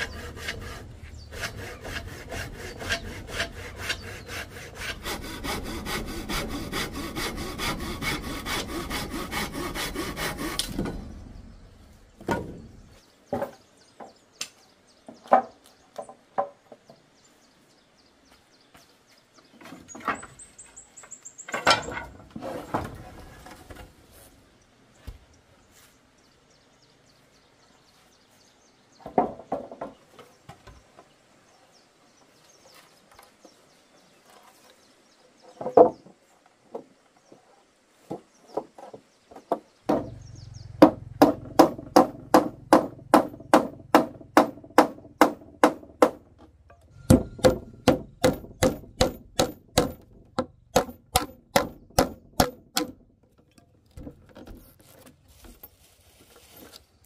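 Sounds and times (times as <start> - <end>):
knocks: 39.5 - 40.2, 40.8 - 53.1.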